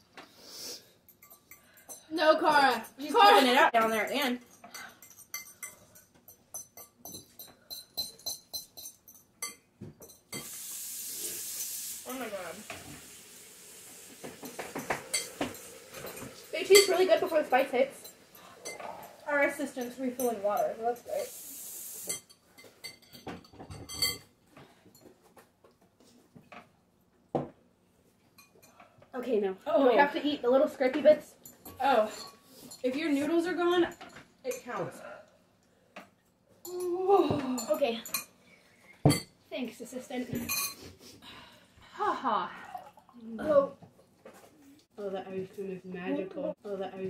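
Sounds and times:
utensils clinking on glass: 1.1s - 10.5s, 14.4s - 21.2s, 22.0s - 24.3s, 40.3s - 40.8s
glass bowl clattering: 14.4s - 20.7s, 22.1s - 24.3s.

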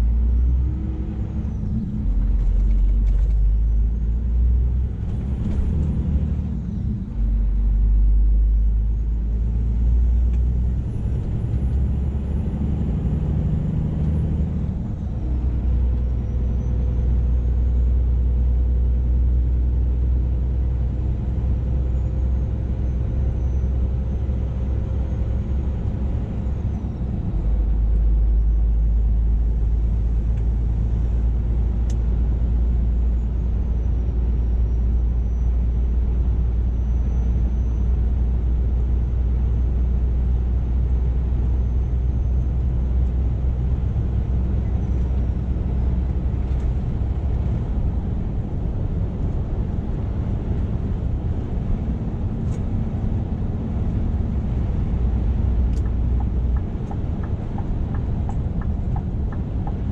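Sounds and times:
truck diesel engine drone: 0.0s - 59.9s
tyre and road noise: 41.8s - 59.9s.

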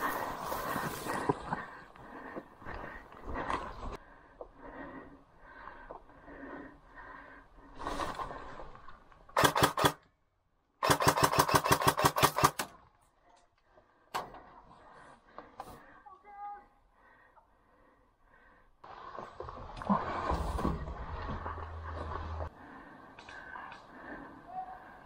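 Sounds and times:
airsoft gun firing full auto: 9.4s - 10.0s, 10.8s - 12.7s.

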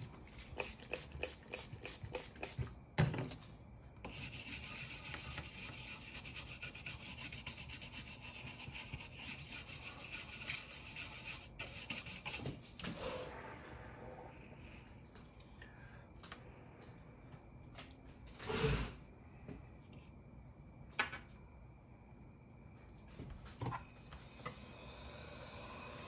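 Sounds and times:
scratchy rubbing strokes: 4.1s - 12.4s.

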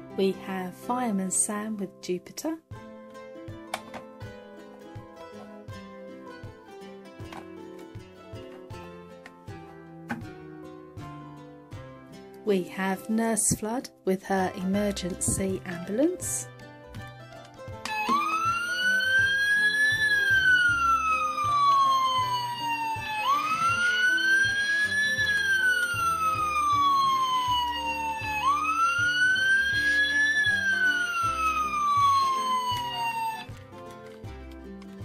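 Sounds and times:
toy electronic siren wailing: 17.9s - 33.5s.

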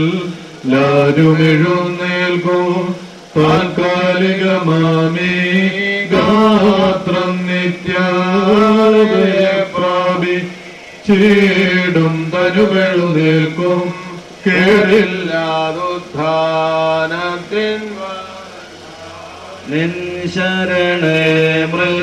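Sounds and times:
men chanting liturgy: 0.0s - 22.0s.

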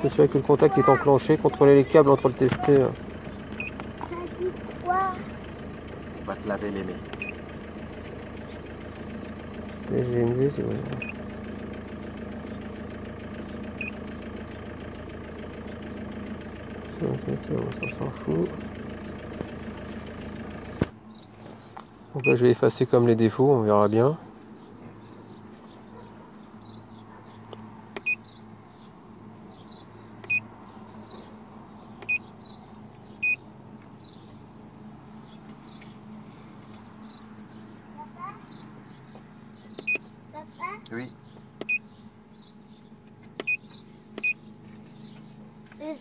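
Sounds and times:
diesel engine idling: 0.0s - 46.0s
short electronic beeps: 33.2s - 33.4s.

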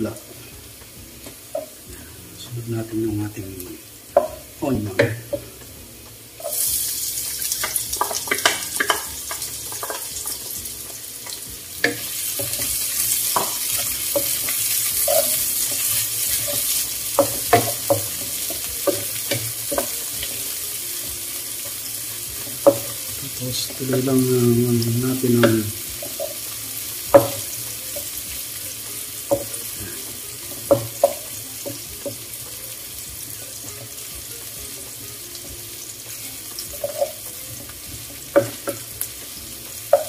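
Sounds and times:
onion sizzling in hot oil: 0.0s - 40.0s
wooden spatula scraping a pan: 6.4s - 20.4s.

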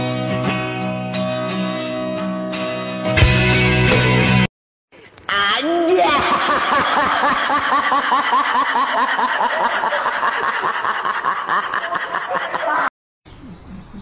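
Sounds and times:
high-pitched giggling laughter: 5.9s - 12.9s.

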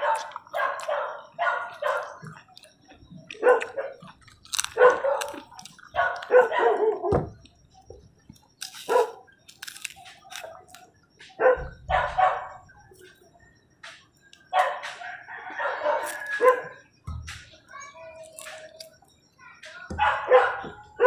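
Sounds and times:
dog barking: 0.0s - 2.4s, 3.3s - 7.3s, 8.8s - 9.3s, 11.4s - 12.7s, 14.5s - 16.8s, 19.9s - 21.0s.

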